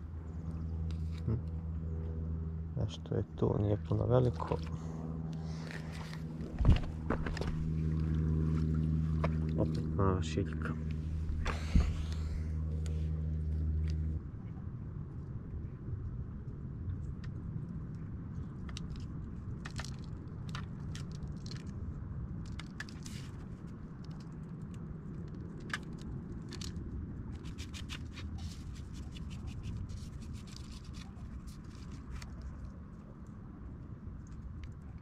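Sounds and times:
small clicks and scratches: 0.3s - 2.1s, 16.9s - 35.0s.

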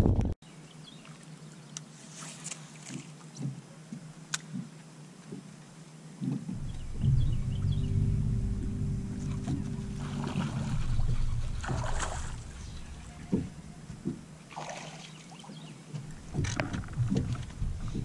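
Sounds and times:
electric trolling motor humming: 6.5s - 14.3s
sharp knocks: 6.5s - 14.3s
water splashing: 6.5s - 18.0s.

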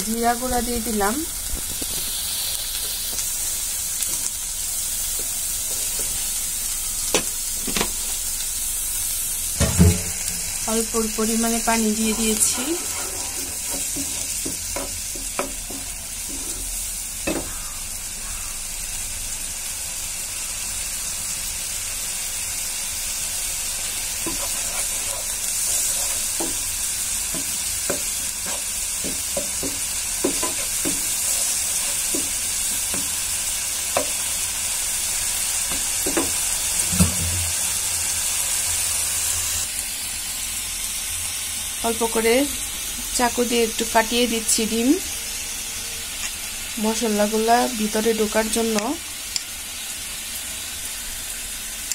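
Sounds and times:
masala sizzling in a pan: 0.0s - 51.9s
spatula scraping pan: 11.9s - 16.8s, 24.2s - 33.1s
spatula tapping pan: 13.6s - 16.0s, 24.2s - 25.2s, 25.8s - 33.2s.

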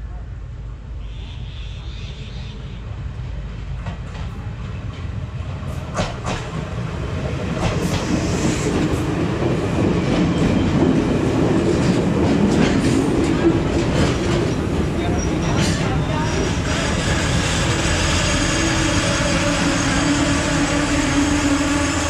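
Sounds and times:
train rumble passing by: 2.1s - 22.0s.

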